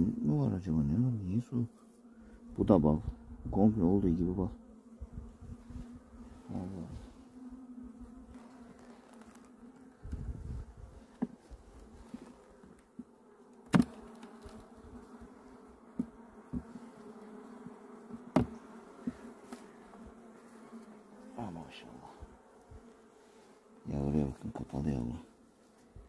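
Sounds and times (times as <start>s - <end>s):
honeybees humming: 0.0s - 26.0s.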